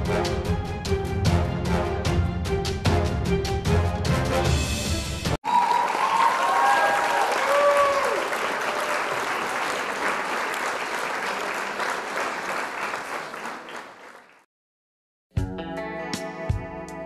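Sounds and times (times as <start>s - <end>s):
crowd applause and cheering: 5.3s - 14.5s
people whooping: 5.4s - 9.8s.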